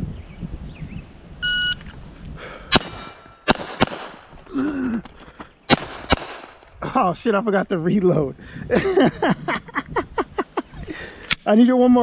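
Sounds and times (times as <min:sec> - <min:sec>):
shot timer beep: 0:01.4 - 0:01.8
pistol shots: 0:02.7 - 0:04.4, 0:05.7 - 0:06.7.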